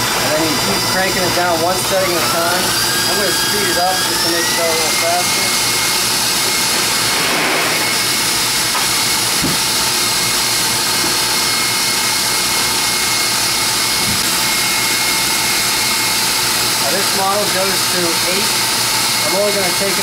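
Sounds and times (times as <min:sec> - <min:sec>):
stand mixer motor whining: 0:00.0 - 0:20.0.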